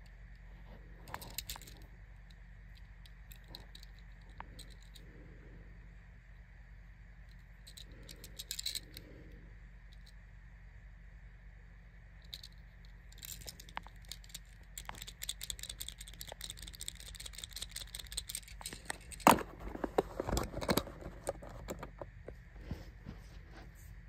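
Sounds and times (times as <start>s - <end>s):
toy car clicks and rattles: 1.0s - 5.0s, 7.6s - 9.0s, 12.2s - 22.1s.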